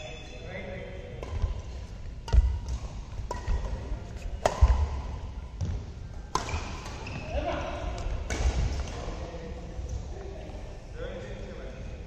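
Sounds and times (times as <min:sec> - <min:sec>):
badminton racket hitting shuttlecock: 0:01.2 - 0:05.0.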